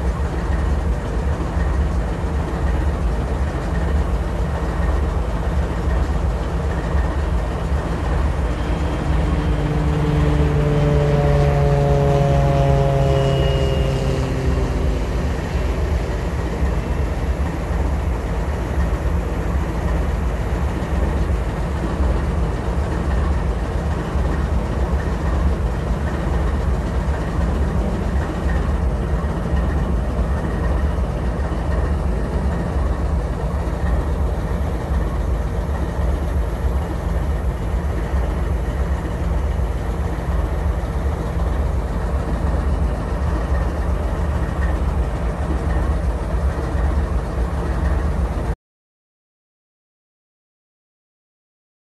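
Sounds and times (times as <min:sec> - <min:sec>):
locomotives idling: 0:00.0 - 0:48.5
pitched tone sliding downward: 0:08.0 - 0:16.8.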